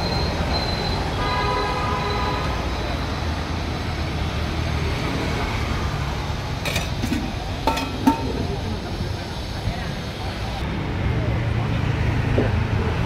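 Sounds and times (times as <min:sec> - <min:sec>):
low rumble of road traffic: 0:00.0 - 0:13.0
ladle clinking against steel pots: 0:06.6 - 0:08.7.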